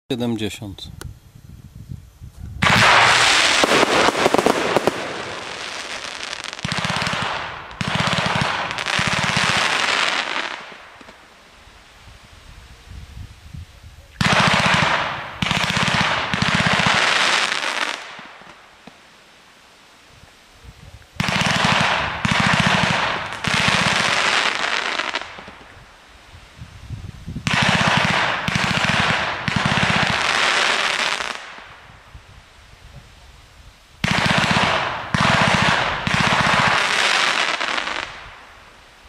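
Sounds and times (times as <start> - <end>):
firework cake firing in volleys: 2.6 - 11.3.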